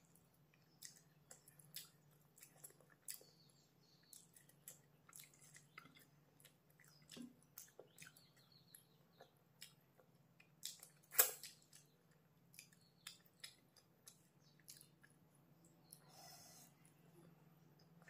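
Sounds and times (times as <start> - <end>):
wet chewing clicks: 0.4 - 16.0
lip smacks: 10.6 - 11.9.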